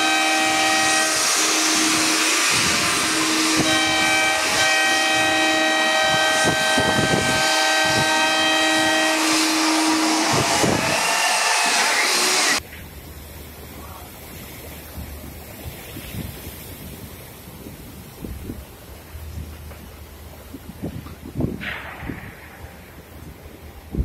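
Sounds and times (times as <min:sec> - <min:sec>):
ship horns sounding a chord: 0:00.0 - 0:12.6
rushing water: 0:00.0 - 0:21.4
wind: 0:00.0 - 0:24.0.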